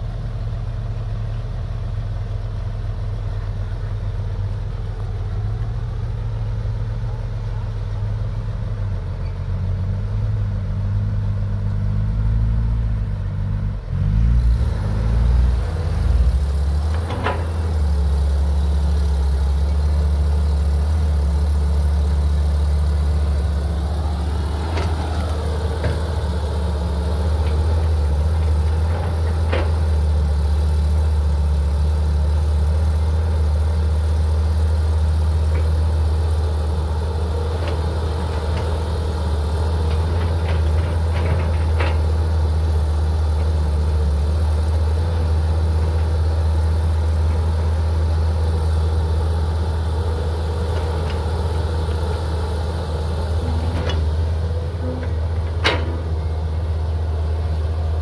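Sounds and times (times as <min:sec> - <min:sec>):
diesel engines droning: 0:00.0 - 0:58.0.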